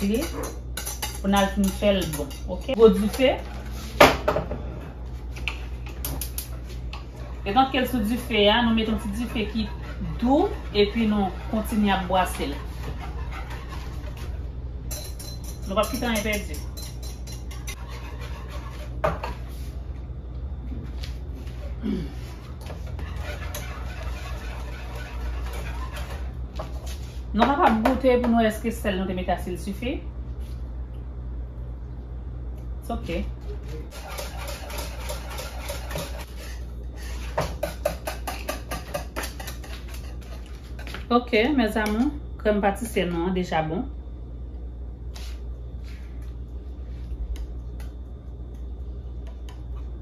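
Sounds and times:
steady low hum: 0.0s - 50.0s
whisk clicking against metal pan: 33.9s - 36.3s.

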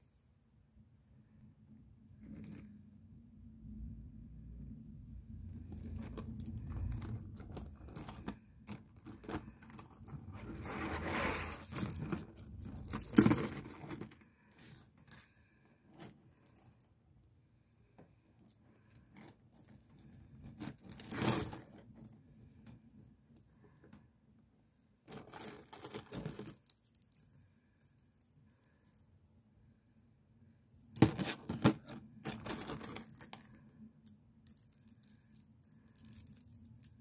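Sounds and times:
beads clicking and rattling: 25.1s - 29.1s, 32.2s - 37.0s.

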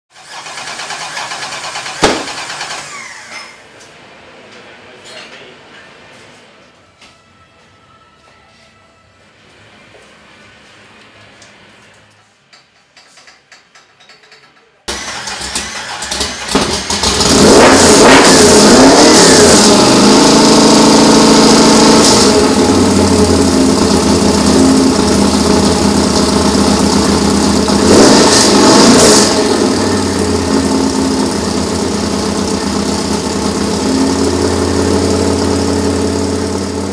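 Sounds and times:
truck engine starting: 0.1s - 3.6s, 14.9s - 36.9s
truck engine revving: 15.0s - 36.9s.

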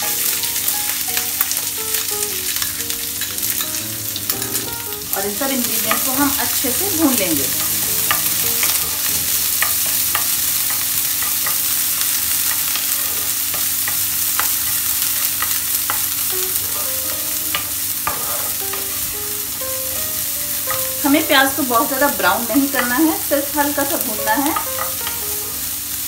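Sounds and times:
vegetables sizzling in hot oil: 0.0s - 26.0s
wooden spatula scraping a pan: 5.7s - 15.6s, 18.0s - 18.8s.

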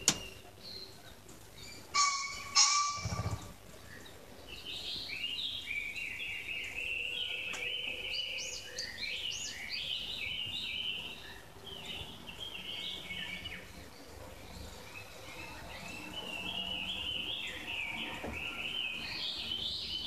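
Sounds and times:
songbird warbling: 1.8s - 3.6s.

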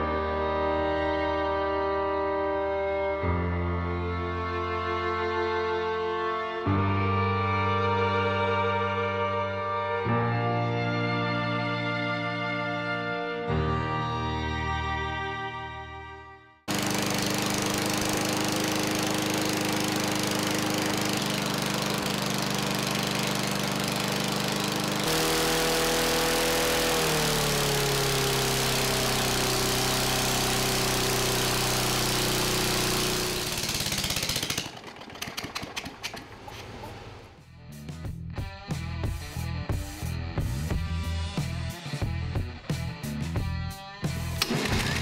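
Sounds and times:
lawn mower engine running: 16.7s - 37.4s, 44.3s - 45.0s.

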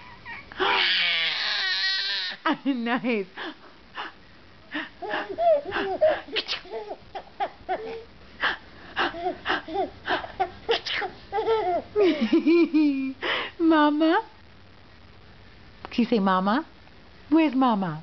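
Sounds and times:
baby laughing and squealing: 0.0s - 2.4s, 5.0s - 8.1s, 9.0s - 12.0s.

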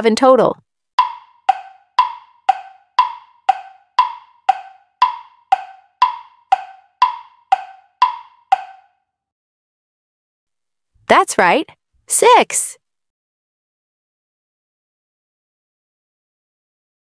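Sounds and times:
wood-block timer ticking: 1.0s - 9.0s.

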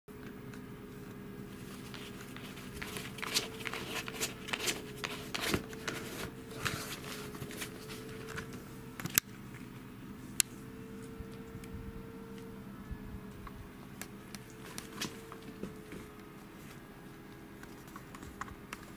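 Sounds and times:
steady low hum: 0.1s - 18.9s
kitten scratching cardboard box: 1.6s - 8.4s.

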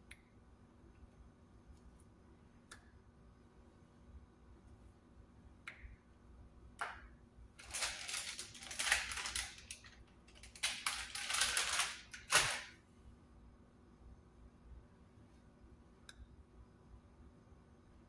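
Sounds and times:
plastic bag crinkling: 7.6s - 12.8s.

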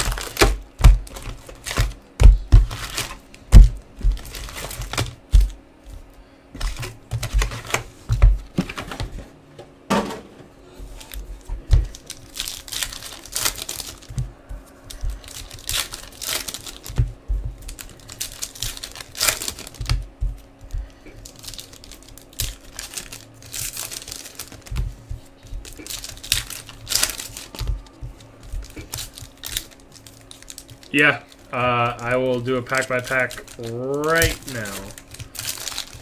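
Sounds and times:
foil wrappers tearing and crinkling: 0.0s - 5.6s, 10.9s - 36.0s
cards being handled knocks: 6.6s - 12.1s, 13.3s - 21.3s.

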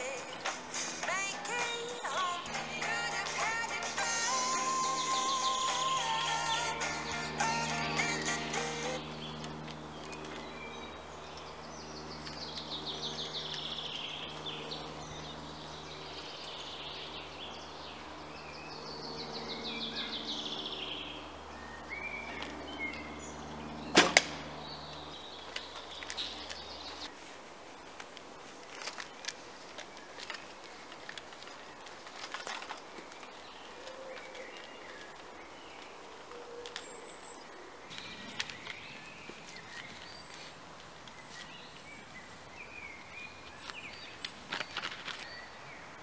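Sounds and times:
low humming drone: 0.0s - 27.1s
birds singing in trills: 0.0s - 27.3s, 33.0s - 46.0s.

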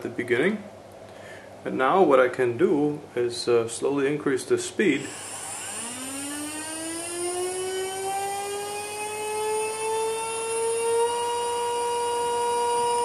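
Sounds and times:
spindle motor whine rising: 4.9s - 13.0s.

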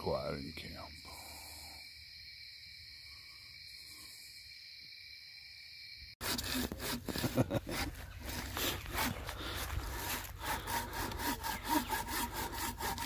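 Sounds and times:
insects droning: 0.0s - 6.2s
hand saw cutting wood: 6.2s - 13.0s.

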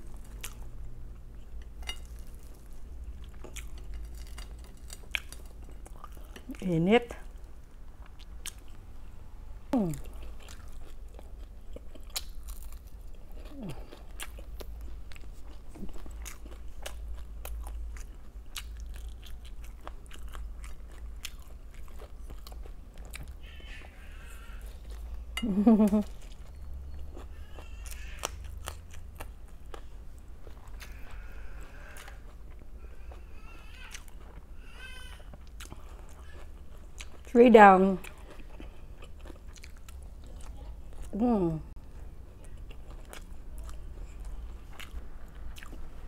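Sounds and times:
person chewing crunchy food: 0.0s - 6.7s, 7.3s - 8.9s, 9.8s - 37.3s, 38.0s - 46.0s
person murmuring: 9.7s - 10.0s, 41.1s - 41.7s.

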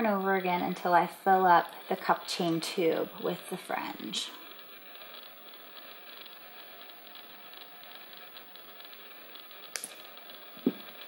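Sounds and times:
faint room hiss: 0.0s - 11.0s
sharp metal click: 9.6s - 10.1s.

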